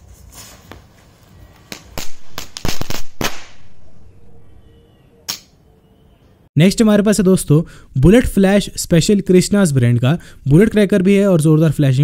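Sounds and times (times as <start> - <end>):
firecracker sharp cracks: 1.7 - 3.8.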